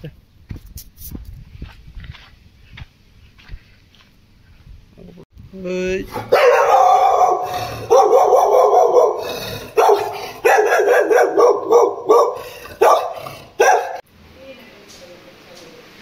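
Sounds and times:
dog barking loudly: 6.1s - 14.0s.

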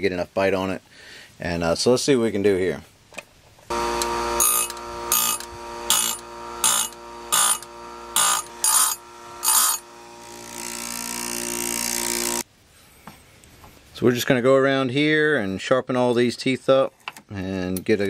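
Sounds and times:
grinder motor hum: 3.7s - 12.4s
grinding wheel on saw chain: 3.7s - 12.4s.

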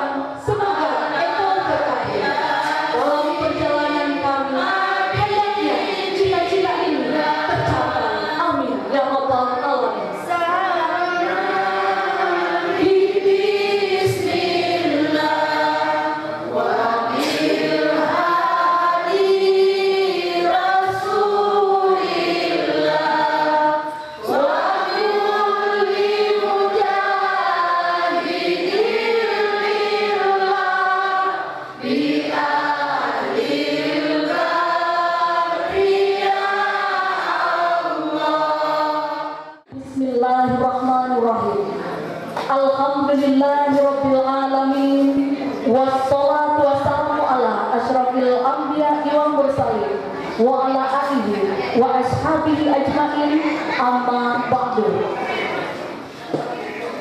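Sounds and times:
congregation singing in unison: 0.0s - 40.8s.

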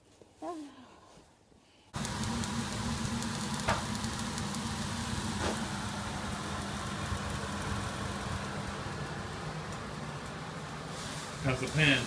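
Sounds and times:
steady low hum: 2.0s - 11.4s
meat sizzling in a frying pan: 2.0s - 12.0s.

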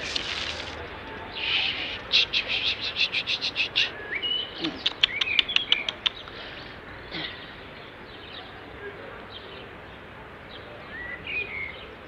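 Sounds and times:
bird chattering and chirping: 1.3s - 7.6s.

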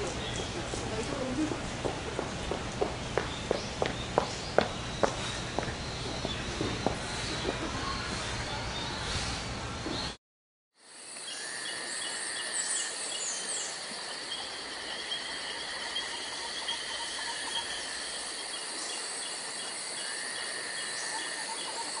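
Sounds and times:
insects chirping: 10.8s - 22.0s.

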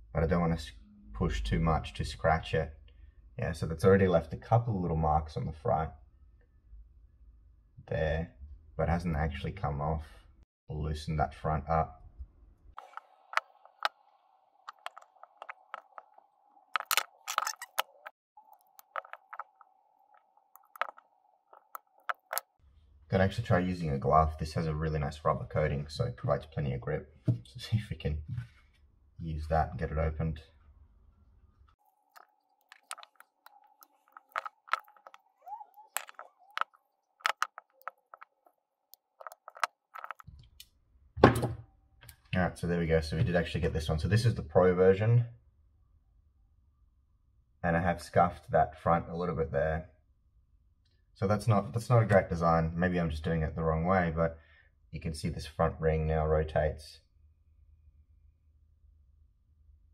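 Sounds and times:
locking pliers clicking and creaking: 16.8s - 19.6s, 32.2s - 38.4s, 39.2s - 40.3s.

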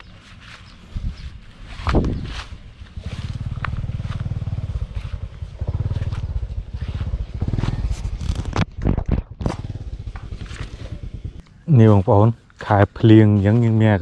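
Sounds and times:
small engine throbbing: 2.2s - 11.4s.

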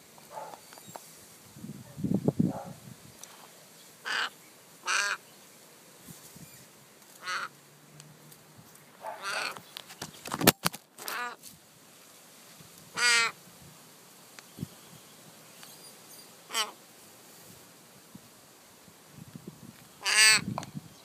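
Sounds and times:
young raven begging caws: 4.0s - 5.3s, 7.2s - 7.6s, 9.1s - 9.7s, 11.0s - 11.4s, 12.9s - 13.4s, 16.5s - 16.8s, 20.0s - 20.5s.

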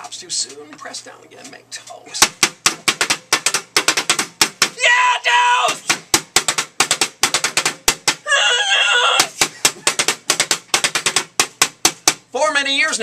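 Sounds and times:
forks drumming on a toaster: 0.0s - 4.8s, 5.7s - 8.2s, 9.2s - 12.3s
high-pitched squawk: 8.3s - 9.3s.

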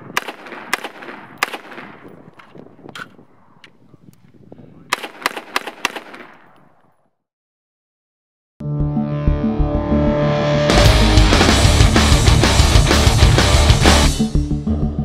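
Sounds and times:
rifle shots: 0.0s - 2.4s, 4.9s - 6.8s.

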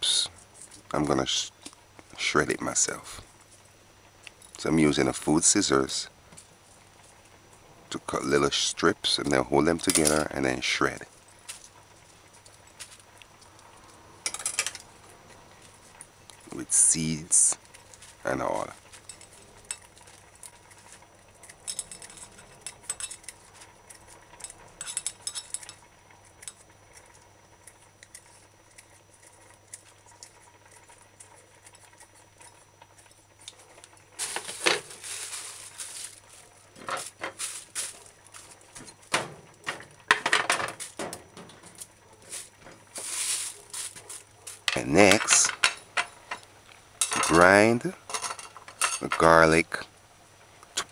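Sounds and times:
scraping and clinking on ceramic plate: 21.6s - 23.4s, 24.4s - 25.8s.

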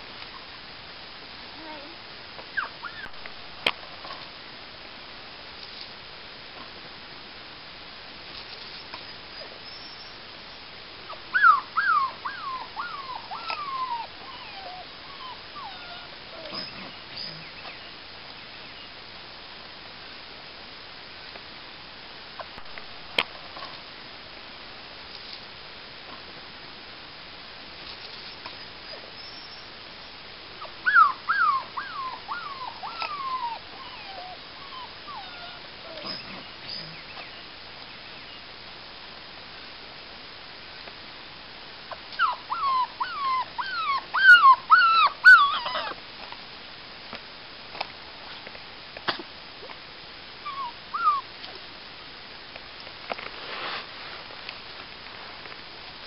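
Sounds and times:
puppies whimpering and yipping: 2.6s - 3.1s, 11.4s - 17.4s, 30.6s - 36.9s, 41.9s - 46.0s, 50.4s - 51.2s.

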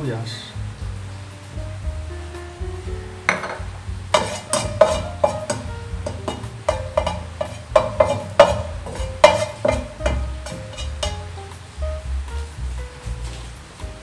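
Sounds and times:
wooden spatula scraping a pot: 4.1s - 11.4s.

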